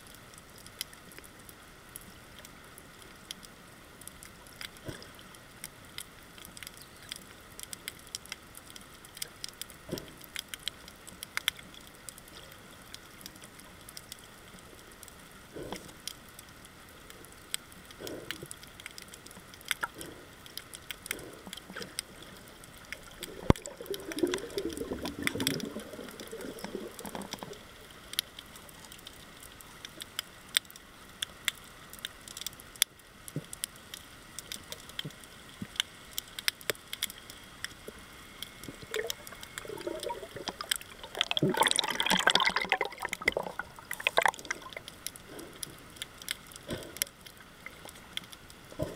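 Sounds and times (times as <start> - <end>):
muffled rustling burble: 4.3 - 30.2, 36.8 - 48.9.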